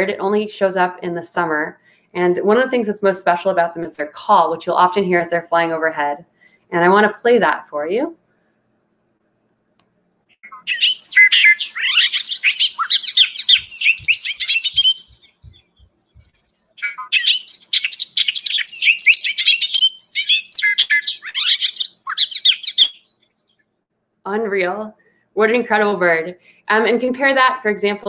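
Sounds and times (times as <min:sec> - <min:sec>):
bobolink singing: 0:10.4 - 0:19.4.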